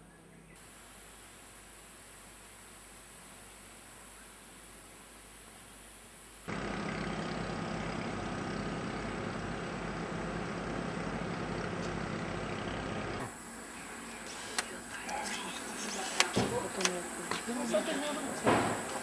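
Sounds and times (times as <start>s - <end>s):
outboard motor droning: 6.5s - 14.5s.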